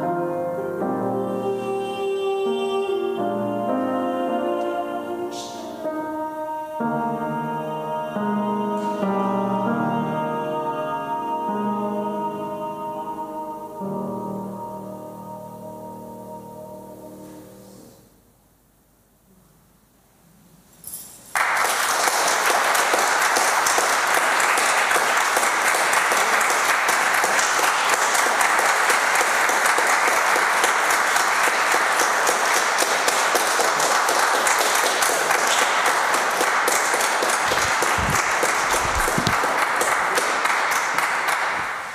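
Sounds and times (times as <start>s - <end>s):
audience applauding: 21.3s - 41.9s.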